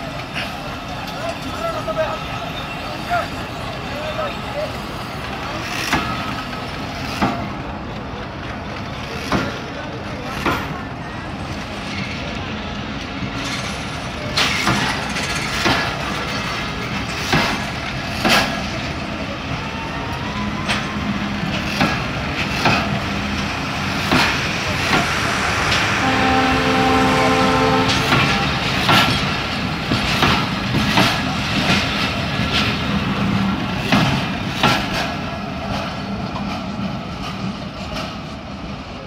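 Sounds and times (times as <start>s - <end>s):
train wheels clacking on rails: 4.1s - 19.9s, 20.6s - 39.0s
train horn: 24.8s - 29.7s.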